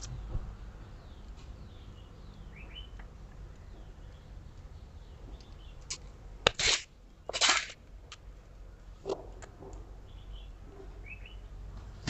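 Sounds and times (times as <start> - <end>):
faint bird chirps: 0.0 - 6.1, 9.1 - 11.6.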